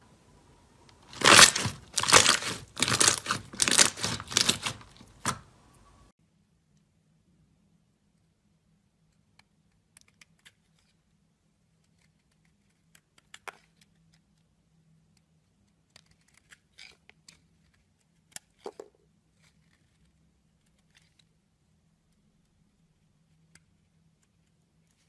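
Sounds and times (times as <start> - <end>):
crisp crackles and scrapes: 1.0 - 5.4
knife carving hard soap: 1.0 - 5.6.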